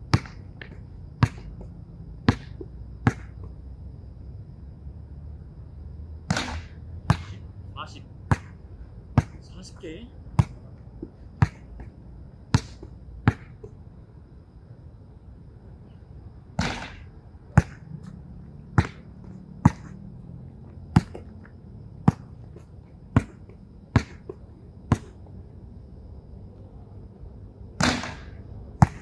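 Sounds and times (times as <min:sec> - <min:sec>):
basketball bouncing on hard court: 0:00.1 - 0:03.4, 0:08.3 - 0:08.6, 0:09.2 - 0:09.4, 0:11.4 - 0:11.7, 0:12.5 - 0:13.8, 0:18.7 - 0:20.0, 0:20.9 - 0:21.3, 0:22.0 - 0:25.2, 0:28.8 - 0:29.0
noisy impact: 0:16.5 - 0:20.0, 0:27.8 - 0:29.0.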